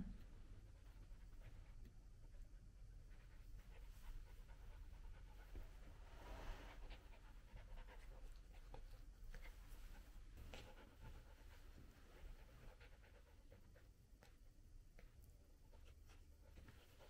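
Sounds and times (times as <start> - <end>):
puppy panting: 0.8 - 14.4.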